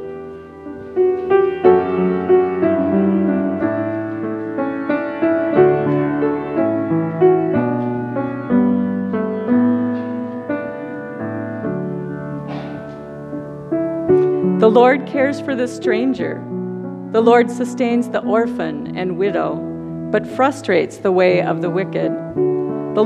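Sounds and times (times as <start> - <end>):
grand piano playing slow notes: 0.0 - 23.0.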